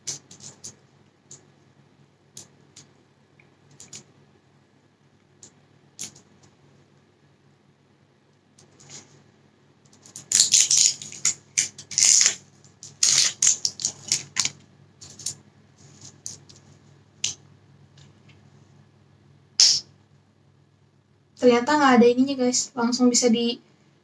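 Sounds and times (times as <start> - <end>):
plastic seal crinkling: 10.0 - 15.4.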